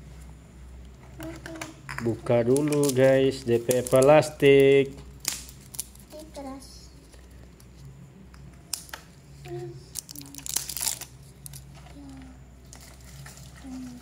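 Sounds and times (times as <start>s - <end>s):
foil wrapper crinkling and tearing: 2.4s - 6.2s, 9.9s - 11.7s.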